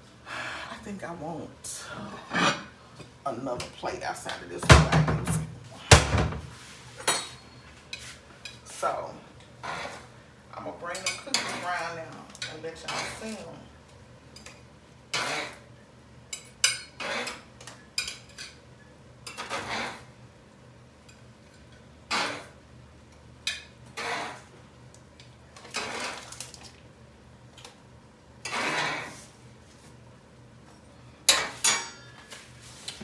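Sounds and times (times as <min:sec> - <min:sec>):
utensil scraping baking sheet: 0:09.6 - 0:10.1, 0:15.1 - 0:15.7, 0:19.3 - 0:20.1, 0:28.4 - 0:29.9.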